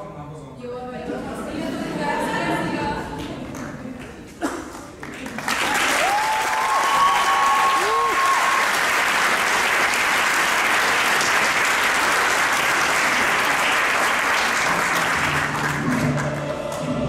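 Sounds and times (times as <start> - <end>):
audience applauding: 4.8 - 17.0.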